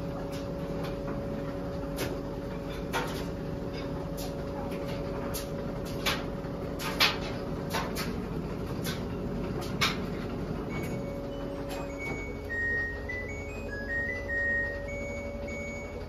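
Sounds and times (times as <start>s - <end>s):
washing machine humming: 0.0s - 16.0s
electronic beeps tune: 10.7s - 16.0s.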